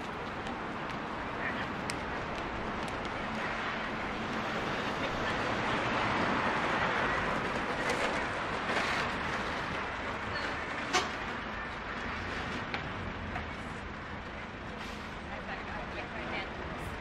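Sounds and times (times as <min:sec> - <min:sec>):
vehicle passing: 0:00.0 - 0:13.3
city street ambience: 0:00.0 - 0:17.0.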